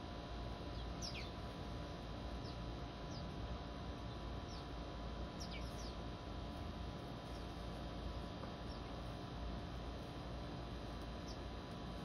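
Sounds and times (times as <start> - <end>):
low background rumble: 0.0 - 12.0
songbirds chirping: 0.5 - 6.4, 7.0 - 9.3, 11.0 - 12.0.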